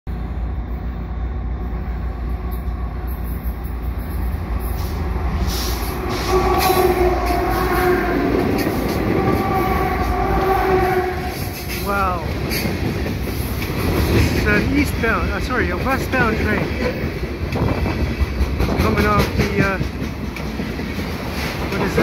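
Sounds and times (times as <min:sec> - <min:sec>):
freight train rumble: 0:00.1 - 0:22.0
locomotive horn chord: 0:06.1 - 0:11.8.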